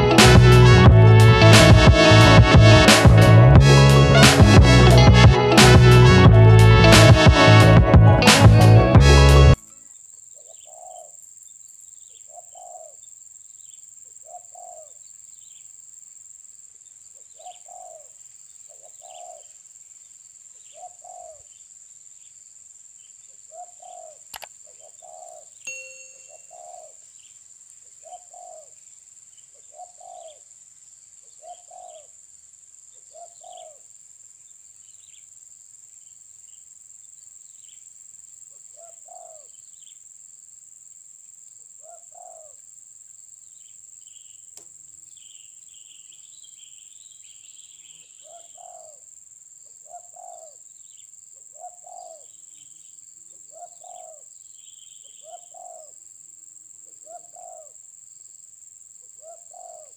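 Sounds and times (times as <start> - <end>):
small birds chirping: 16.8 - 32.2, 32.8 - 35.4, 41.7 - 56.0, 56.8 - 57.8, 59.0 - 59.9
doves cooing: 59.2 - 59.9.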